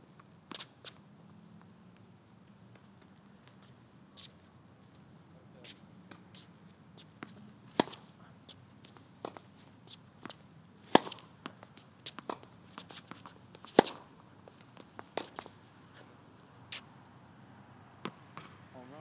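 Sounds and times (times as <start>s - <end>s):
tennis ball bouncing: 7.0s - 15.6s, 18.0s - 18.6s
distant racket hits: 7.2s - 8.2s, 10.2s - 15.6s
tennis racket striking ball: 10.2s - 14.1s.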